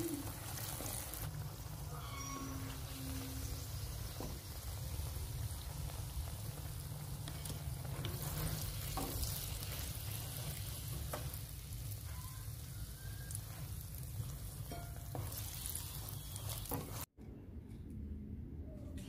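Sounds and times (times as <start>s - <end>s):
oil popping and crackling: 0.0s - 1.9s, 2.6s - 17.1s
mushrooms deep-frying in oil: 0.0s - 17.1s.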